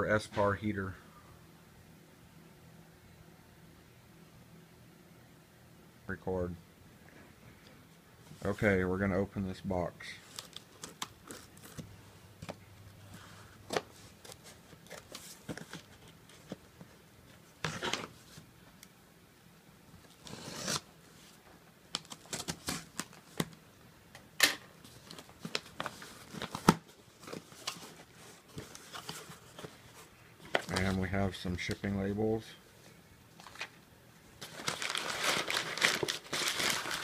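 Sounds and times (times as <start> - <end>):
cardboard clicks and rustles: 13.6 - 18.5, 24.8 - 31.0, 34.4 - 37.0.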